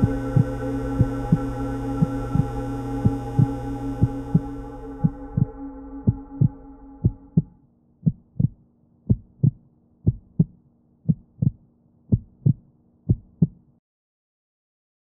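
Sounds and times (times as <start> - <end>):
faint steady hum: 0.0 - 7.5
low drone: 0.0 - 7.6
heartbeat thumps: 0.0 - 13.6.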